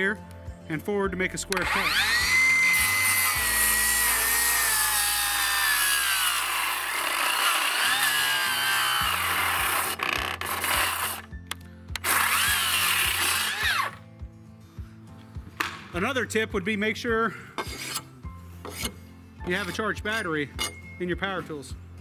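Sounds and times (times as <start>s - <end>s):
circular saw cutting wood: 1.5s - 11.3s, 12.0s - 14.0s, 17.6s - 18.1s.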